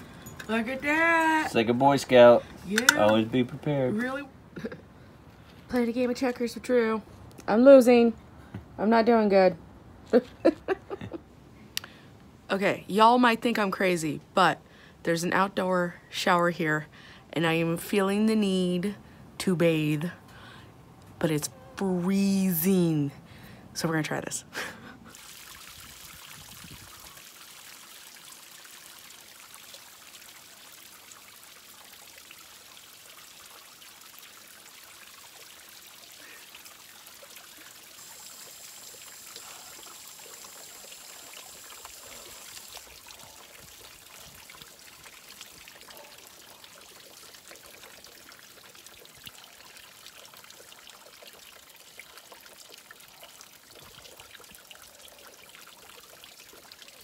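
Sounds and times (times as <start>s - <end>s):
shower water spraying: 37.1s - 44.8s.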